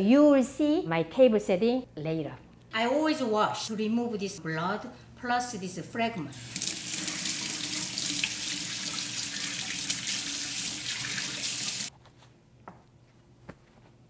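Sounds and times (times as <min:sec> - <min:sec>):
faucet running into steel sink: 0:06.3 - 0:11.9.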